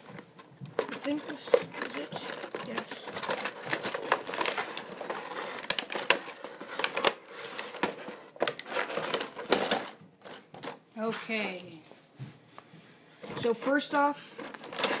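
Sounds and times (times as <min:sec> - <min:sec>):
plastic tray crackling and clicking: 0:00.0 - 0:10.0.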